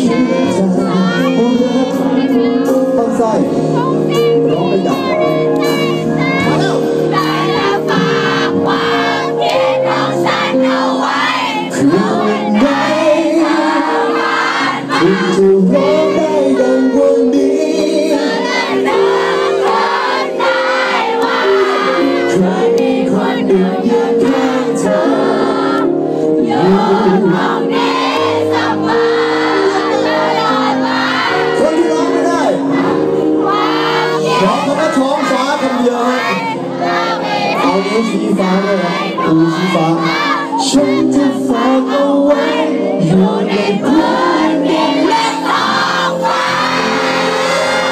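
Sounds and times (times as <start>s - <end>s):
audience singing along: 0.0s - 2.8s, 3.6s - 47.9s
man singing: 0.0s - 7.3s, 11.7s - 14.2s, 14.8s - 18.8s, 22.0s - 25.2s, 26.4s - 27.7s, 34.2s - 36.6s, 37.5s - 45.4s
live band playing: 0.0s - 10.8s.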